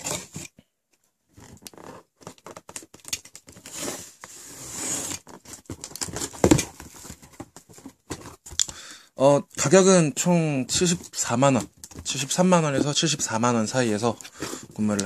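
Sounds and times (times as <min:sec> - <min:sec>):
cardboard scratching and rustling: 0:01.4 - 0:08.4, 0:10.8 - 0:15.0.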